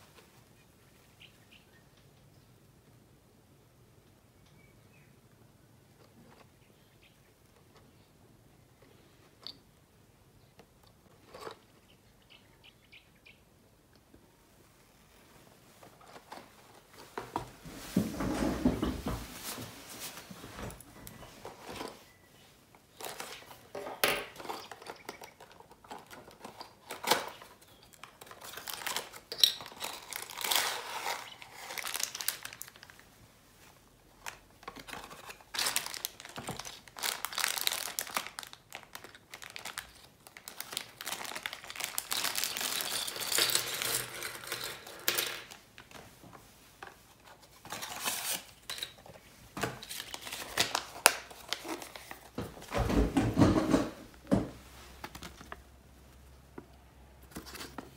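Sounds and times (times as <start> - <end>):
plastic bag crinkling: 22.9 - 33.1, 34.2 - 45.6
plastic parts clattering on wood: 23.0 - 32.6, 41.2 - 46.0, 51.0 - 55.6.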